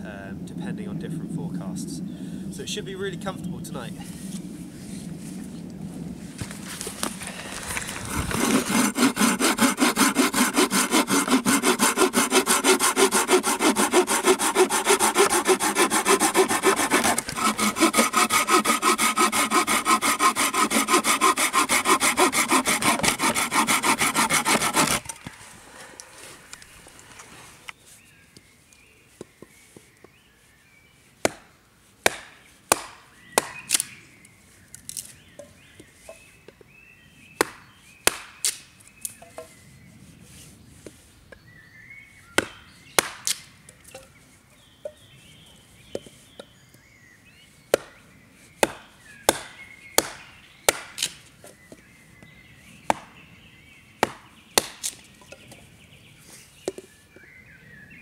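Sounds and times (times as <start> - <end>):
hatchet chopping wood: 8.1 - 25.2, 31.2 - 33.9, 37.4 - 38.6, 42.4 - 43.5, 47.7 - 48.0, 48.6 - 51.2, 52.9 - 53.2, 54.0 - 55.0.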